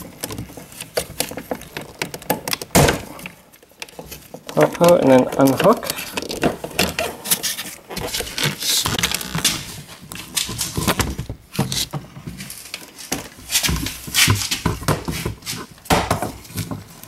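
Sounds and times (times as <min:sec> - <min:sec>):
plastic door panel clicks and rustling: 0:00.0 - 0:07.2.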